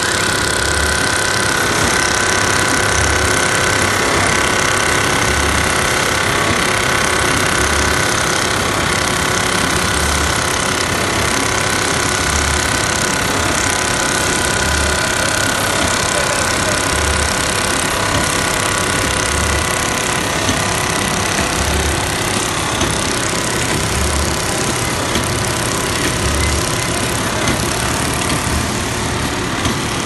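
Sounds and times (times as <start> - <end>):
machine rattling: 0.0 - 30.0.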